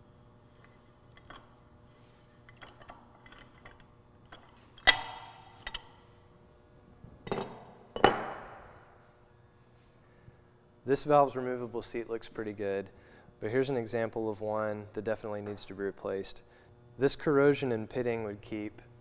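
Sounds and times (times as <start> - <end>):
metal parts clinking and tapping: 0.6 - 1.6, 2.5 - 6.0, 7.2 - 8.3.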